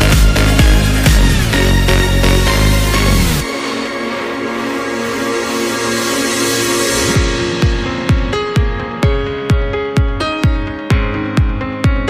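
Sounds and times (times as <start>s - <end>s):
electronic dance music: 0.0s - 12.0s
held synth chords: 0.0s - 12.0s
steady kick drum: 7.0s - 12.0s.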